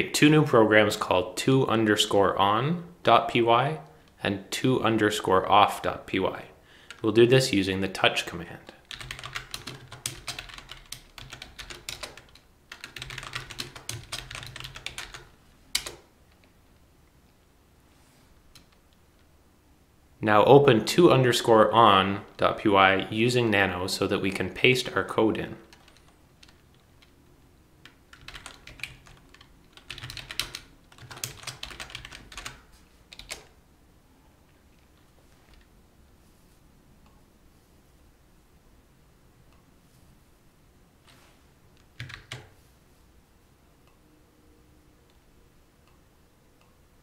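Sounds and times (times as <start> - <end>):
typing on computer keyboard: 8.8 - 16.0, 25.7 - 27.1, 27.8 - 33.6, 41.9 - 42.5.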